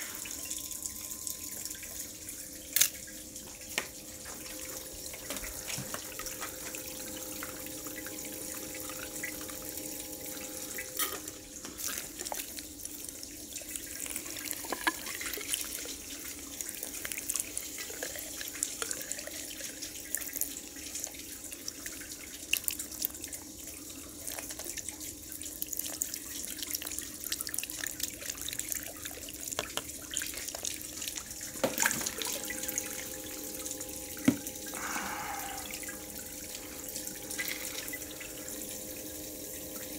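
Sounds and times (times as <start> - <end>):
water splashing and dripping: 0.0 - 39.9
low hum: 31.4 - 39.9.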